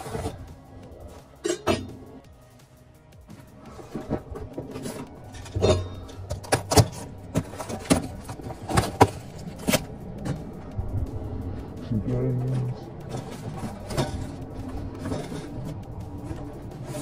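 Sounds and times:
cardboard boxes knocking and scraping: 6.2 - 9.9.

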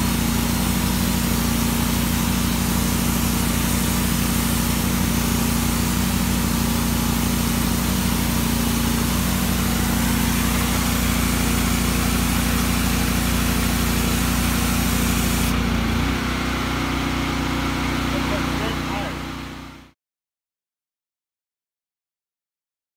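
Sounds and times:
soap jet hissing: 0.0 - 15.6
pressure washer engine running: 0.0 - 20.0.

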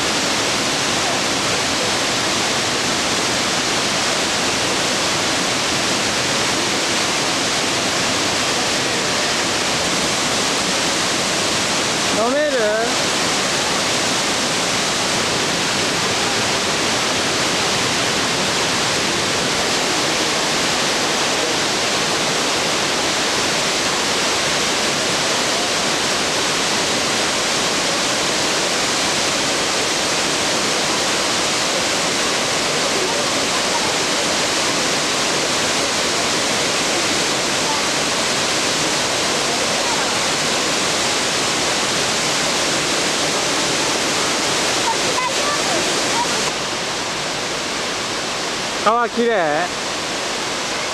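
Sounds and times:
waterfall rushing: 0.0 - 50.9.

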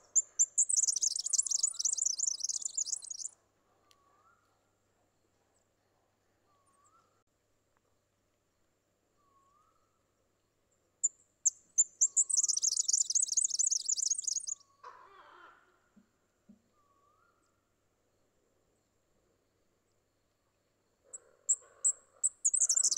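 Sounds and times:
bird song with reeling trill: 0.0 - 3.3, 11.8 - 14.8, 22.3 - 22.9
faint rising bird call: 0.0 - 3.3, 12.0 - 15.7, 22.4 - 22.9.

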